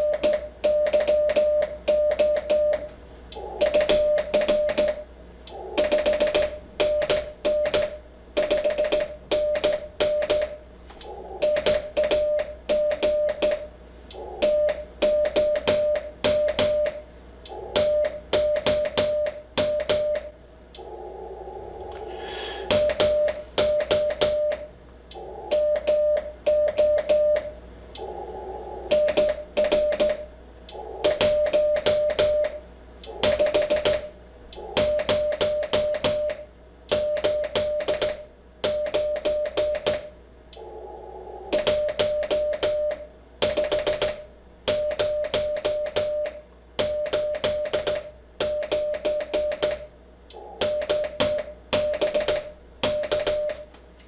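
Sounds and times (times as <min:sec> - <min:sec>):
morse code sidetone beeps: 0:00.0 - 0:02.9, 0:03.6 - 0:04.9
filtered receiver hiss: 0:00.0 - 0:54.0.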